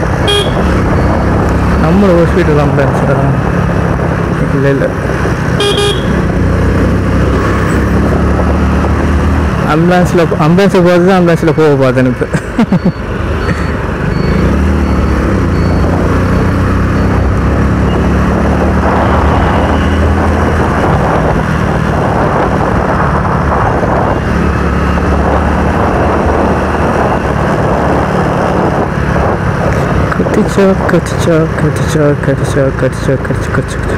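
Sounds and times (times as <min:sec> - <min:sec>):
motorcycle engine cruising: 0:00.0 - 0:33.9
wind on microphone: 0:18.0 - 0:31.0.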